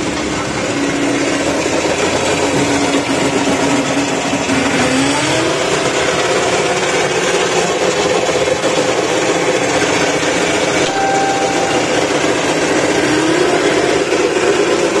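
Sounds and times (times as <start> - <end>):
electric tractor motor running: 0.0 - 15.0
rising motor whine: 10.9 - 14.1.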